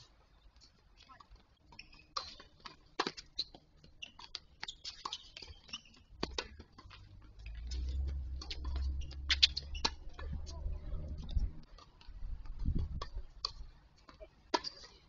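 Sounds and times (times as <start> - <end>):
tennis ball hitting racket: 4.1 - 14.9
low rumble: 6.8 - 13.0.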